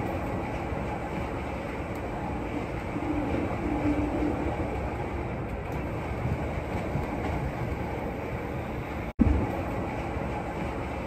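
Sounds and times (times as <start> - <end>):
train wheels rumbling on track: 0.0 - 11.0.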